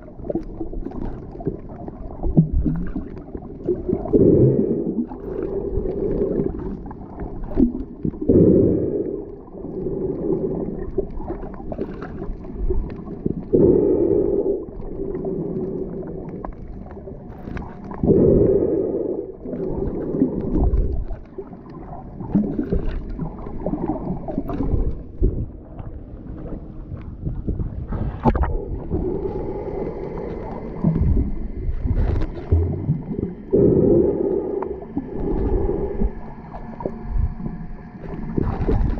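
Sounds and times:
water rushing underwater: 0.0s - 38.9s
breathing through snorkel: 8.3s - 11.0s, 13.5s - 16.2s, 18.0s - 21.0s, 27.9s - 32.5s, 33.3s - 36.8s.

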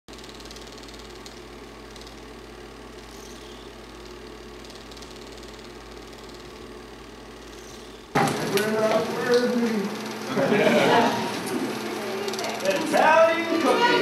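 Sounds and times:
film projector whirring: 0.1s - 14.0s
film transport clatter: 8.1s - 9.6s.

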